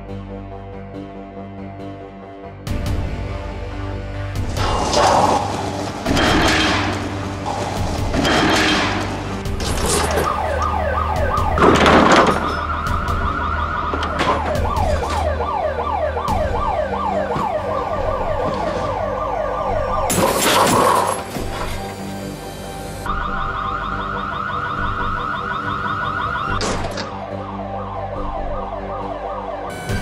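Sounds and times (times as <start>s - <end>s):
emergency siren yelping: 9.9s - 21.2s, 23.0s - 30.0s.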